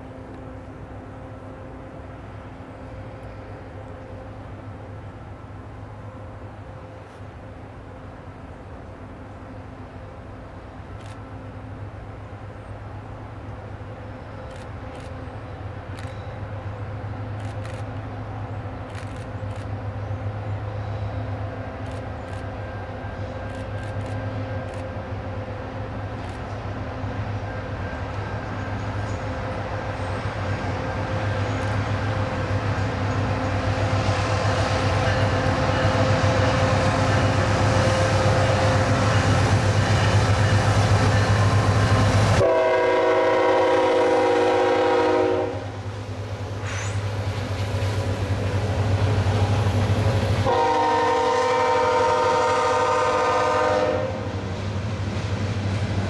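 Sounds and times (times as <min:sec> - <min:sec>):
freight train rumbling: 0:00.0 - 0:56.0
train horn blasts: 0:27.4 - 0:45.9, 0:50.4 - 0:54.4.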